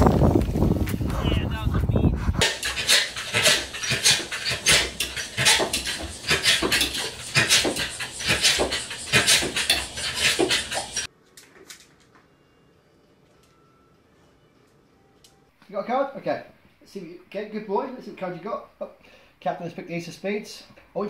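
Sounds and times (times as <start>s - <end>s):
dog panting quickly: 1.1s - 11.1s.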